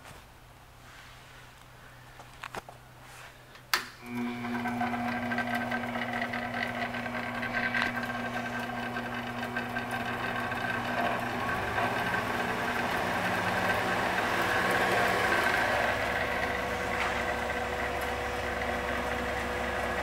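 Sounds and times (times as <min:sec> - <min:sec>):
bandsaw motor hum and whine: 0:04.0 - 0:20.0.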